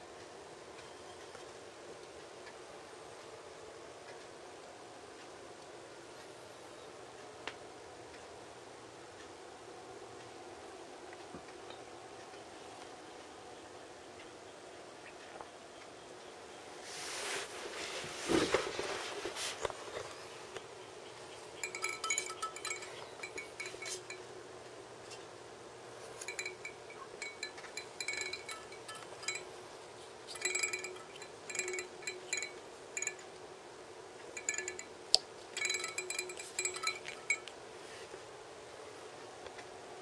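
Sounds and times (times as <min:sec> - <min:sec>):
small ringing clicks of knobs: 0:21.6 - 0:24.3, 0:26.0 - 0:29.6, 0:30.3 - 0:33.5, 0:34.2 - 0:37.6.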